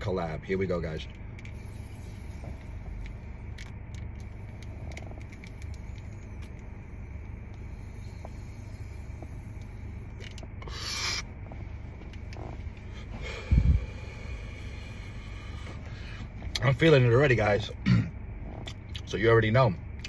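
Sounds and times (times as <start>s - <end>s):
low rumble inside car: 0.0s - 20.0s
short sharp breath: 7.7s - 11.3s.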